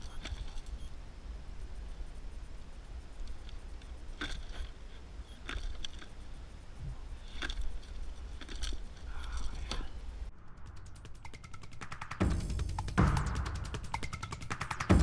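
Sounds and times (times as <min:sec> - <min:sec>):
sharp clicks and rattles: 0:10.7 - 0:15.0.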